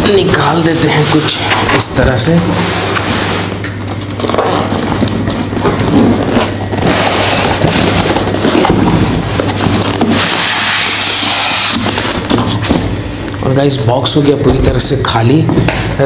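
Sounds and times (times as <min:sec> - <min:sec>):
steady low hum: 0:00.0 - 0:16.0
cardboard and foam scraping: 0:05.8 - 0:12.7.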